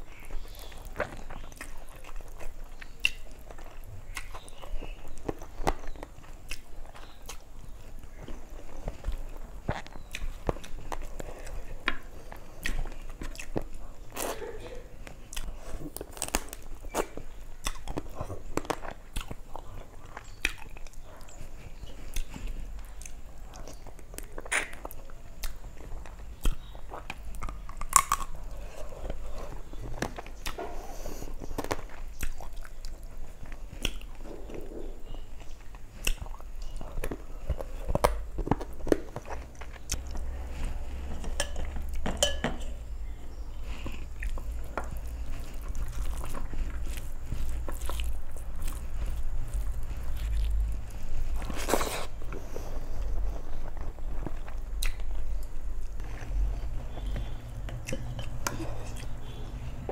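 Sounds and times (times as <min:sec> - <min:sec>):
close chewing and lip-smacking: 0:00.0 - 0:42.1, 0:43.0 - 0:59.9
crunchy bites: 0:15.3 - 0:21.0, 0:21.9 - 0:42.1, 0:43.0 - 0:52.4, 0:53.0 - 0:59.9
fingers mixing food on plate: 0:31.6 - 0:52.4.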